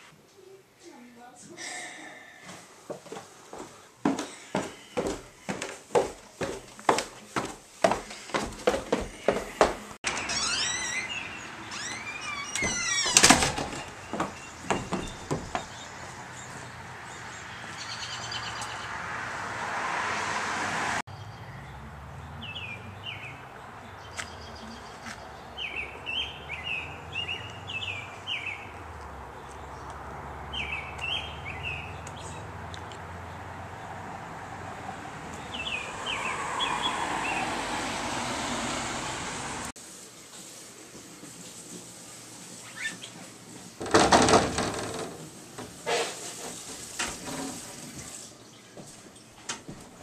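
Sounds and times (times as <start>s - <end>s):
birds chirping: 9.2s - 19.2s, 21.1s - 38.9s
wooden door creaking open: 10.0s - 15.8s, 43.8s - 45.4s.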